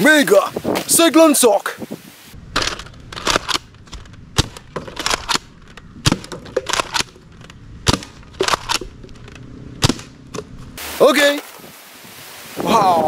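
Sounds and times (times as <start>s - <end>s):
dart blaster firing pops: 9.8s - 10.1s.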